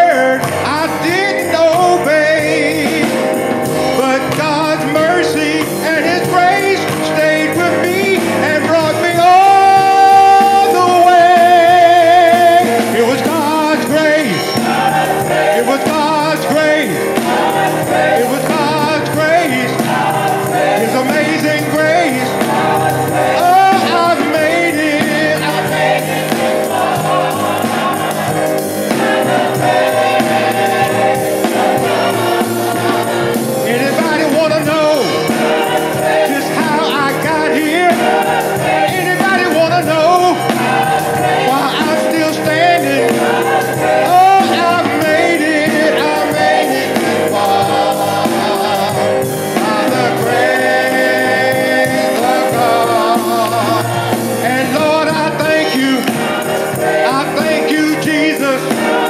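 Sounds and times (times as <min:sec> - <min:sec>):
man singing into microphone: 0:00.0 - 0:26.1, 0:33.5 - 0:59.0
gospel choir singing: 0:00.0 - 0:59.0
choir clapping: 0:00.1 - 0:59.0.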